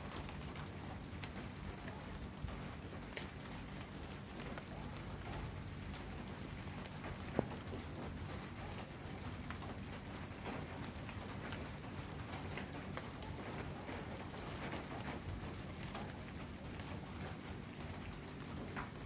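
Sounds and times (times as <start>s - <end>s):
rain drops tapping on hard surfaces: 0.0s - 19.0s.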